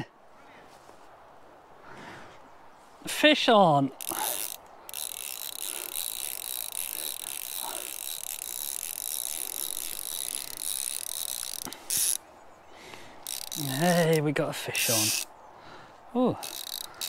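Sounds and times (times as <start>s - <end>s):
fishing reel ratchet buzzing: 3.9s - 12.2s, 13.2s - 14.2s, 14.8s - 15.3s, 16.4s - 17.0s.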